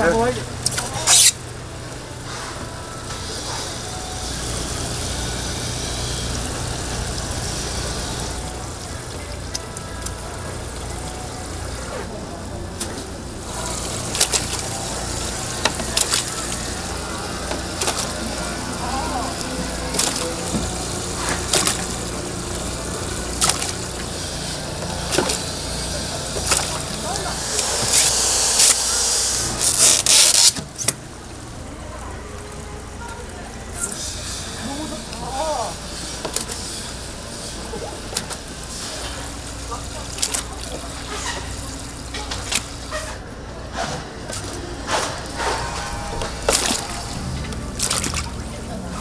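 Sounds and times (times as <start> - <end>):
low mechanical hum: 0.0 - 49.0
water running and splashing: 4.4 - 30.5, 34.5 - 43.2, 44.3 - 49.0
even hiss: 13.6 - 30.6.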